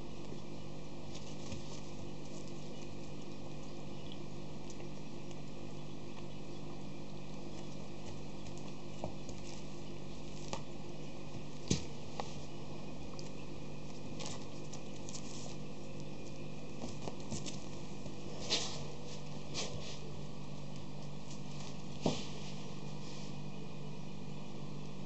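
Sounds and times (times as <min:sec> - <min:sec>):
steady low hum: 0:00.0 - 0:25.0
small knocks and scrapes: 0:16.8 - 0:20.1, 0:21.2 - 0:23.4.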